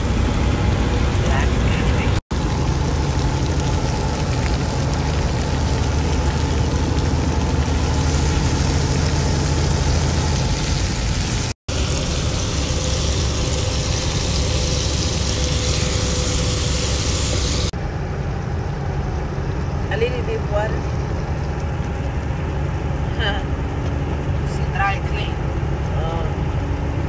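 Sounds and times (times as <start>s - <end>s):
truck engine humming: 0.0s - 27.0s
mushrooms frying in oil: 1.2s - 17.8s.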